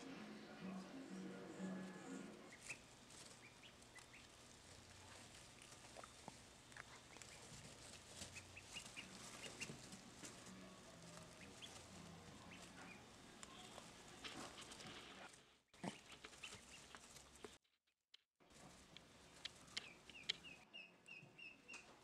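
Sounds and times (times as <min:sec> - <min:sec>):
duckling peeping: 0:02.4 - 0:10.4, 0:11.2 - 0:13.9, 0:15.8 - 0:17.5, 0:19.4 - 0:22.0.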